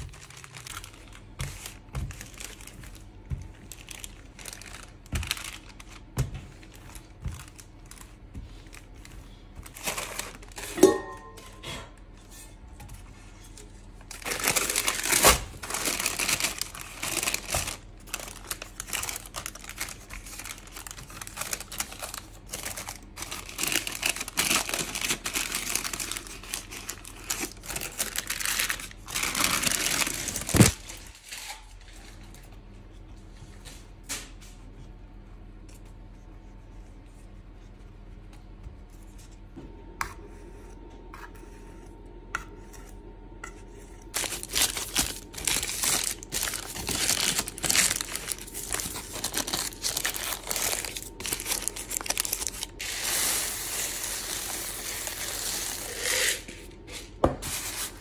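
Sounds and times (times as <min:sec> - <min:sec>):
parchment paper crinkling: 0:00.0 - 0:10.6, 0:13.5 - 0:32.3, 0:44.1 - 0:56.2.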